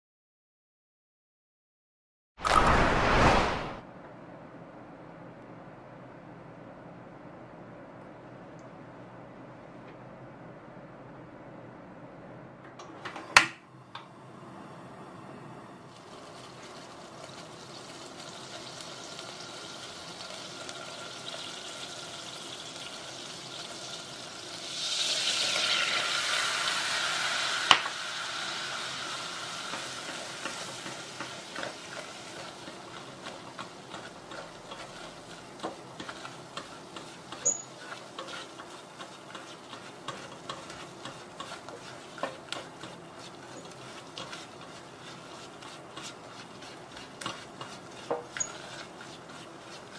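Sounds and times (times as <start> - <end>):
butter sizzling in a saucepan: 15.9 - 49.9
spatula scraping a pan: 28.7 - 49.9.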